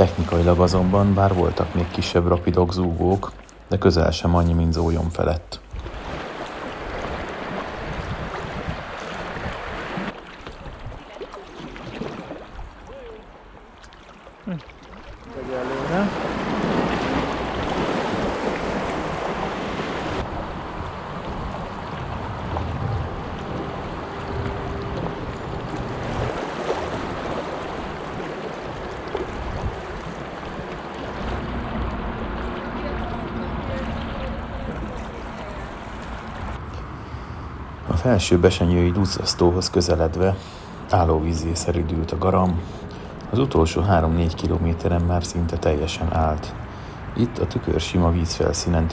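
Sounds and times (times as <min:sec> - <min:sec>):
paddle splashes: 0:05.6 - 0:36.7
river water rushing: 0:05.8 - 0:47.2.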